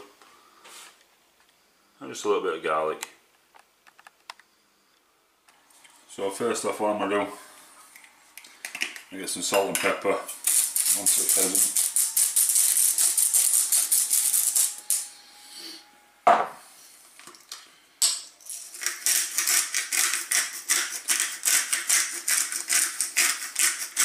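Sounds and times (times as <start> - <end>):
pepper mill grinding clicks: 9.6 - 15.0, 18.5 - 24.0.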